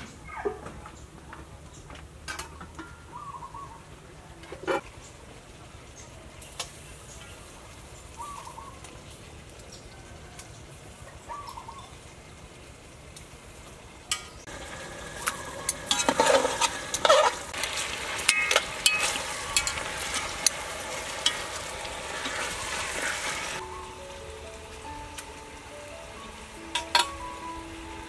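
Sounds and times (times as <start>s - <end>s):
chicken sizzling in a pot: 4.8s - 28.0s
metal utensil scraping pot: 15.2s - 23.6s.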